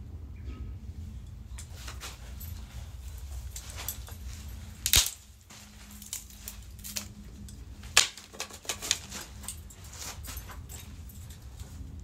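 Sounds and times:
branches snipping and cracking: 3.4s - 10.6s.

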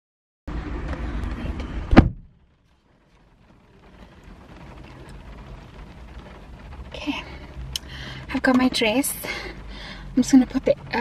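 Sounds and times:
car interior background: 0.5s - 11.0s
loud thump: 1.6s - 2.4s.

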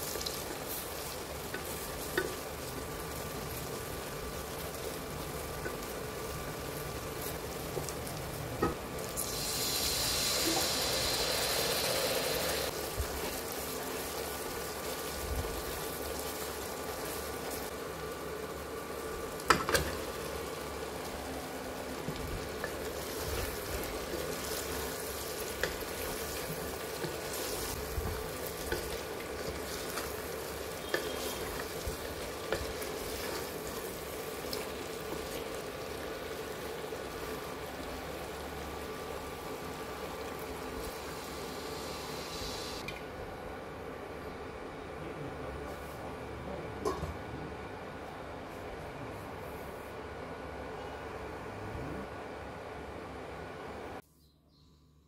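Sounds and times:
onions sizzling in oil: 0.0s - 42.9s
wooden spatula stirring: 22.0s - 36.0s.

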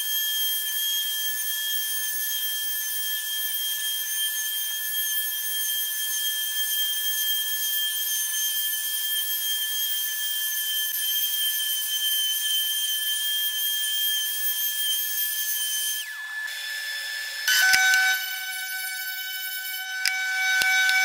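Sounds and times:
orbital sander on wood: 6.6s - 21.0s.

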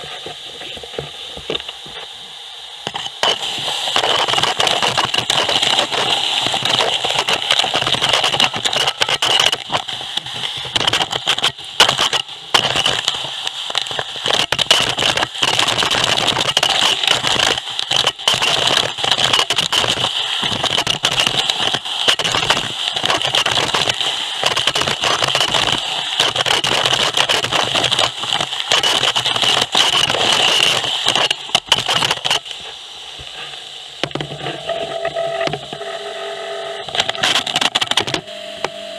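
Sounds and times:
vacuum air rushing at nozzle: 0.0s - 14.4s.

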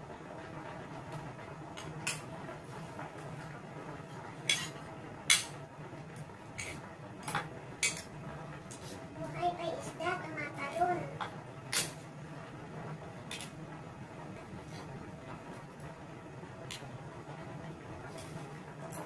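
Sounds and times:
low steady hum: 0.0s - 19.0s
cutlery clinking on a ceramic plate: 4.5s - 5.5s.

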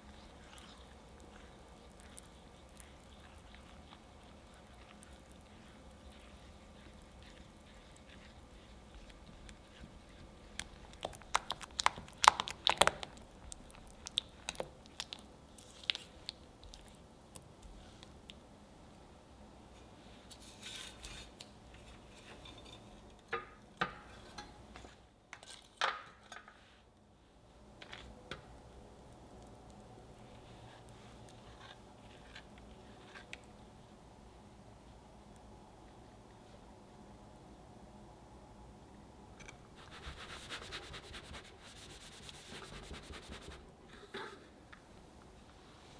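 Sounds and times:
spatula stirring thick chocolate: 0.0s - 18.4s, 28.0s - 34.0s.

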